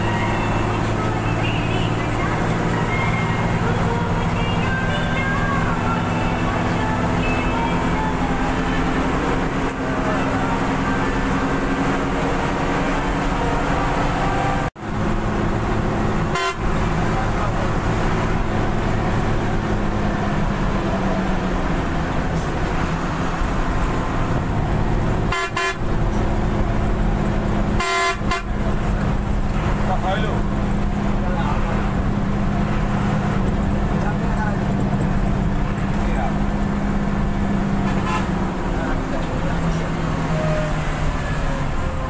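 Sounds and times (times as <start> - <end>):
bus engine and road noise: 0.0 - 42.0
short horn toots: 16.3 - 16.7, 25.3 - 25.9, 27.8 - 28.6, 37.8 - 38.4.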